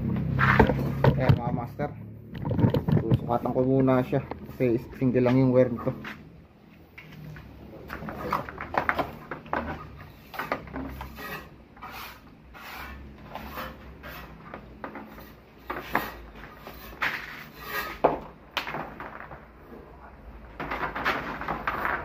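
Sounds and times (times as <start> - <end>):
electrical wire rubbing and scraping: 0.2 - 6.3, 7.0 - 18.1.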